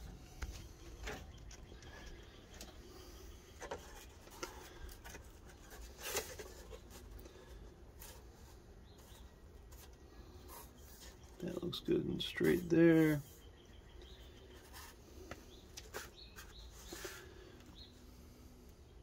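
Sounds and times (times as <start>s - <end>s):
soft rubbing of cardboard: 0.0s - 18.6s.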